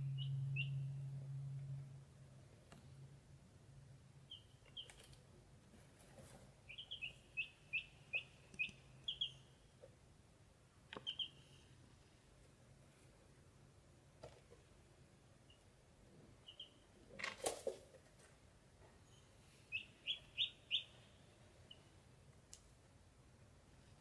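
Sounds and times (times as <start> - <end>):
ducklings peeping: 0.0 - 1.1, 4.2 - 5.2, 6.6 - 9.6, 10.9 - 11.5, 16.4 - 16.9, 19.6 - 22.0.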